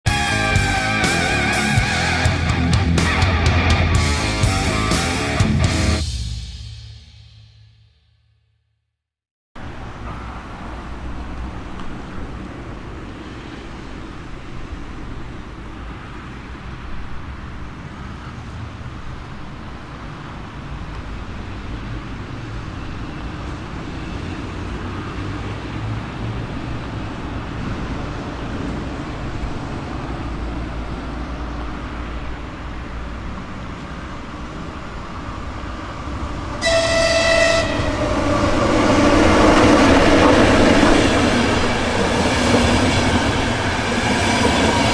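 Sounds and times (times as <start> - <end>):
train horn blast: 0.1 - 2.6, 36.3 - 40.6
train rumbling: 0.1 - 6.4, 9.6 - 44.9.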